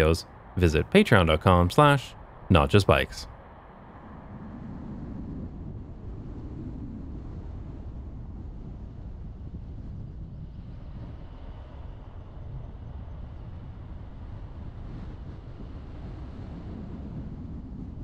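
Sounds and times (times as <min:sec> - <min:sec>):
distant road traffic: 0:00.0 - 0:05.7
wind rumble on microphone: 0:00.0 - 0:18.0.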